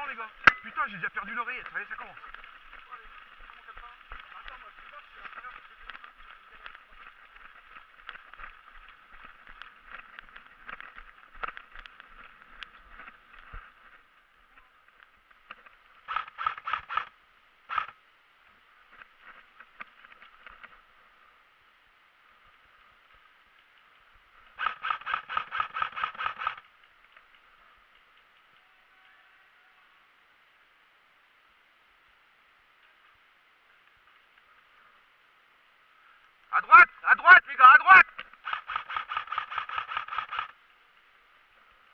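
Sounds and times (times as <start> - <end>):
footsteps: 0.0 - 17.1
airsoft rifle firing bursts: 16.1 - 17.1, 24.6 - 26.6, 38.4 - 40.6
gear rattling: 38.3 - 40.6.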